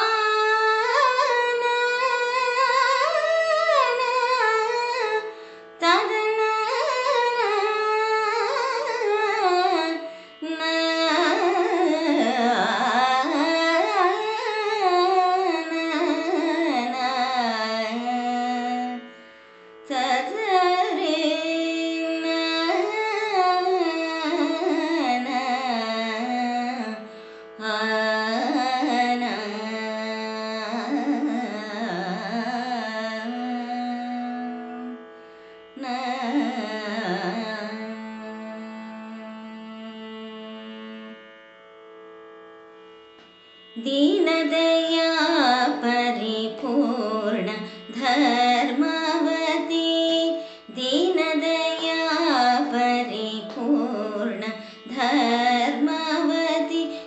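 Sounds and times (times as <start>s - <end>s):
woman singing ornamented phrases: 5.8s - 19.0s, 19.9s - 27.0s, 27.6s - 34.9s, 35.8s - 39.1s, 43.8s - 57.0s.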